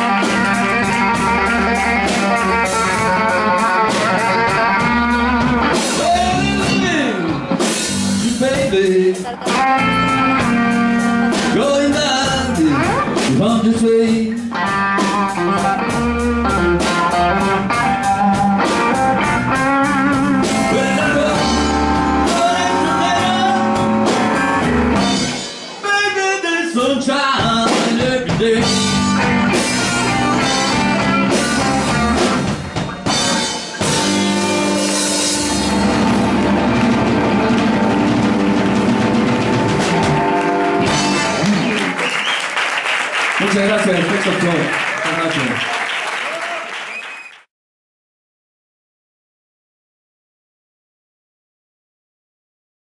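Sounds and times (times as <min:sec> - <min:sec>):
electric guitar lead lines: 0:00.0 - 0:08.4, 0:09.0 - 0:13.5, 0:14.3 - 0:25.9, 0:28.6 - 0:42.1
bass guitar: 0:00.0 - 0:25.9, 0:26.8 - 0:42.4
drum kit: 0:00.0 - 0:26.0, 0:27.3 - 0:42.8.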